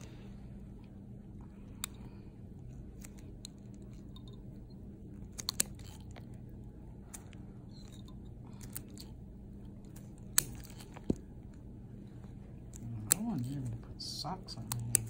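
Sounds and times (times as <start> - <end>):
nail nippers snipping toenail: 12.7 - 13.8, 14.5 - 15.0.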